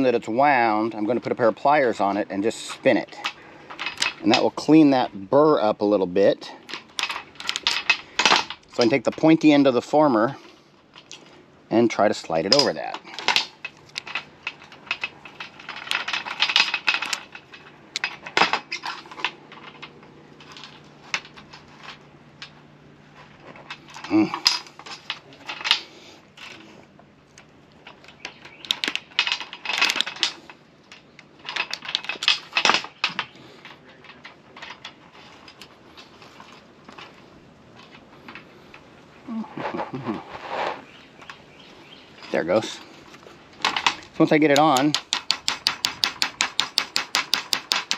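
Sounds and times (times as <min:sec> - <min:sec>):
metal clicking and scraping: 0:00.0 - 0:47.9.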